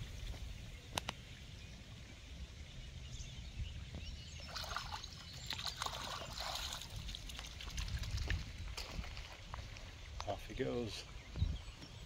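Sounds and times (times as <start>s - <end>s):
river water splashing: 4.4s - 10.3s.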